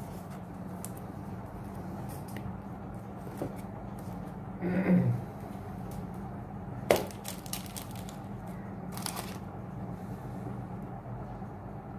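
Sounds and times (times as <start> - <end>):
steady low hum: 0.0 - 11.9
crackling rustle: 7.0 - 9.5.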